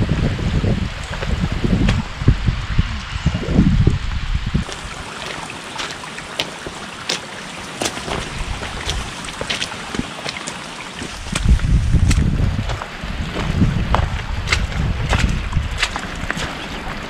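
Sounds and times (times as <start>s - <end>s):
wind buffeting microphone: 0.0s - 7.0s, 7.6s - 10.2s, 10.9s - 17.0s
rain hissing on rocky trail: 4.5s - 16.9s
sharp drips and taps: 4.6s - 12.8s.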